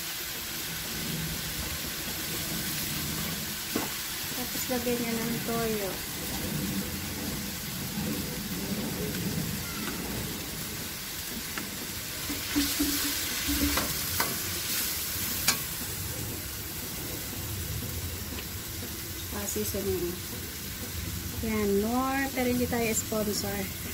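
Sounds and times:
food sizzling in a wok: 0:00.0 - 0:23.9
metal ladle scraping wok: 0:12.2 - 0:15.8.

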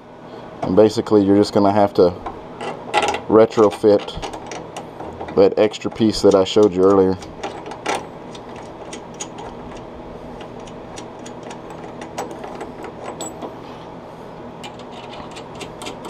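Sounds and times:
steady low hum: 0:00.0 - 0:16.0
metal nuts clicking and scraping: 0:14.6 - 0:16.0.

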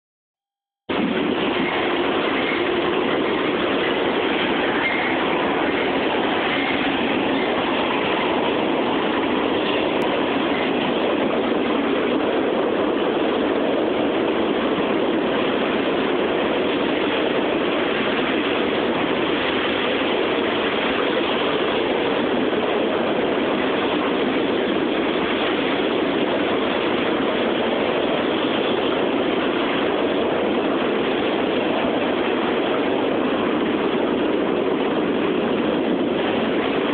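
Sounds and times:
steel wheels rolling on rails: 0:00.9 - 0:36.9.

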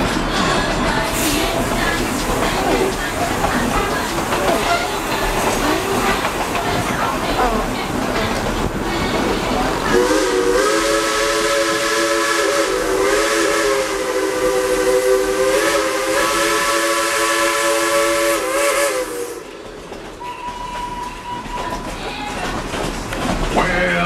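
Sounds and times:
train cars rumbling on track: 0:00.0 - 0:24.0
locomotive whistle blast: 0:09.9 - 0:19.5, 0:20.2 - 0:21.8.

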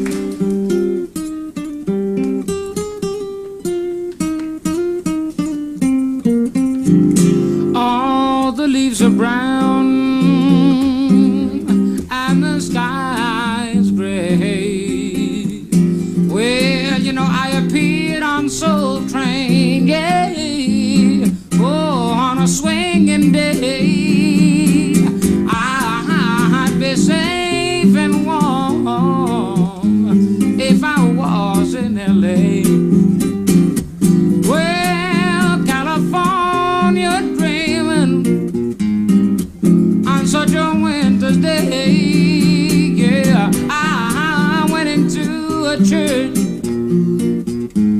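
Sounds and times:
solo acoustic guitar: 0:00.0 - 0:47.9.

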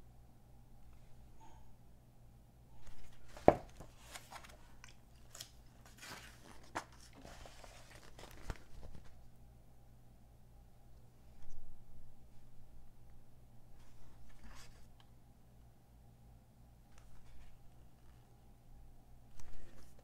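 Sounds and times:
magazine pages rustling: 0:02.8 - 0:09.3.

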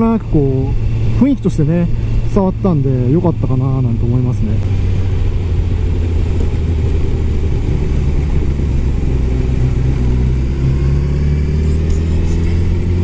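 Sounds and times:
motorcycle engine running: 0:00.0 - 0:13.0
wind rumble on microphone: 0:00.6 - 0:13.0.

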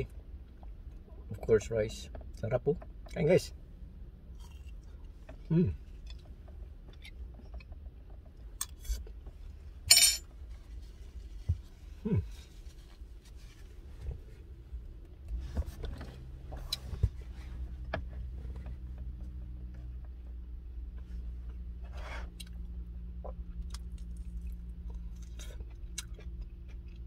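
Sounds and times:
steady low hum: 0:00.0 - 0:27.0
person murmuring mm: 0:05.5 - 0:05.8, 0:12.0 - 0:12.4.

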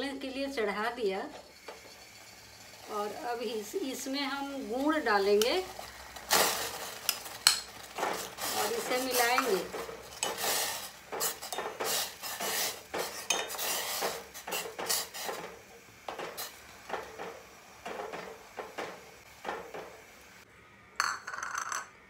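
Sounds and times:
steel spoon scraping a metal pot: 0:06.3 - 0:15.5.

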